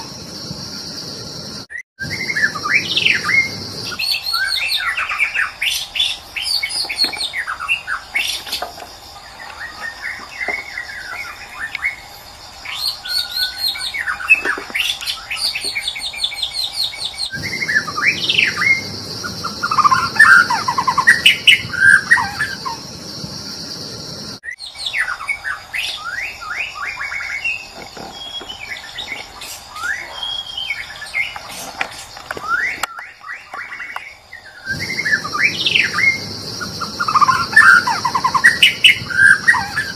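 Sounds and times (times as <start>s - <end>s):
steady high buzz: 0.0s - 32.4s, 33.6s - 39.9s
bird singing whistled phrases: 2.0s - 8.4s, 32.4s - 39.9s.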